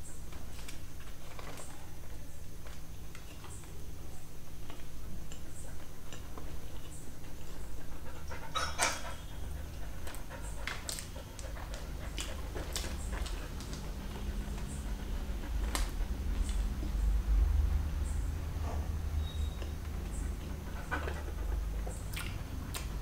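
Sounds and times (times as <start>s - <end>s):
dog panting: 4.9s - 17.5s, 19.9s - 23.0s
person chewing: 10.0s - 17.0s.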